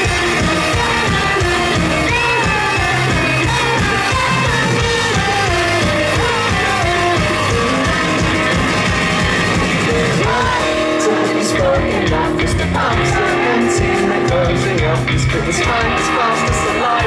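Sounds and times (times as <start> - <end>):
man singing: 0.0 - 9.0, 9.7 - 17.0
drum kit: 0.0 - 17.0
electric guitars: 0.0 - 17.0.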